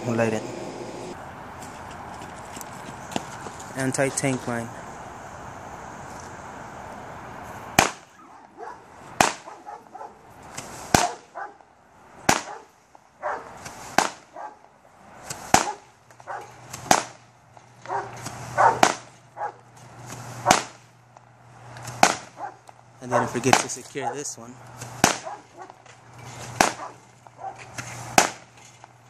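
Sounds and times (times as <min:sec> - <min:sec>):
fireworks shots: 0:07.7 - 0:08.3, 0:09.1 - 0:09.8, 0:10.5 - 0:11.4, 0:12.2 - 0:12.7, 0:13.5 - 0:14.4, 0:15.2 - 0:19.3, 0:20.0 - 0:21.2, 0:21.8 - 0:22.4, 0:23.2 - 0:24.0, 0:24.8 - 0:25.8, 0:26.4 - 0:28.6.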